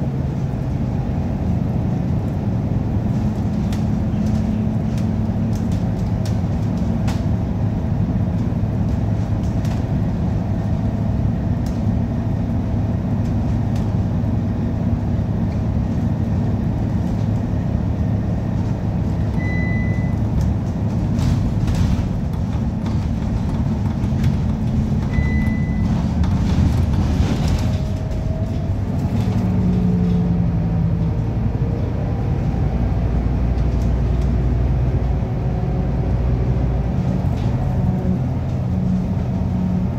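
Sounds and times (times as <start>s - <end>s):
bus engine drone: 0.0s - 39.9s
short high beep: 19.4s - 20.2s, 25.1s - 25.9s
gearbox whines: 21.2s - 30.0s.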